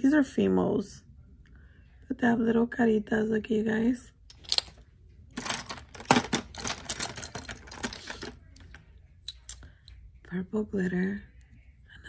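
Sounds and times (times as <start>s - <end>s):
plastic jars clicking together: 5.4s - 8.8s.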